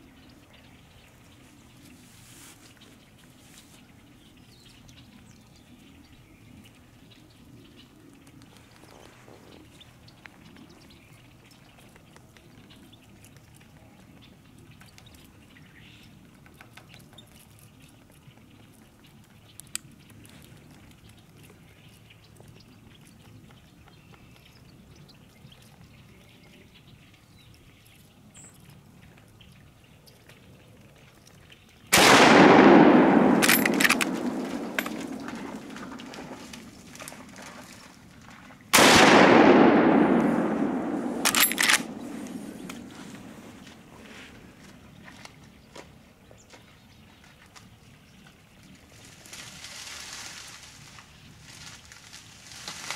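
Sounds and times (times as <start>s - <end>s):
rifle shots echoing: 31.9s - 36.6s, 38.8s - 43.5s
rifle lever clicks: 33.0s - 35.6s, 39.0s - 42.9s.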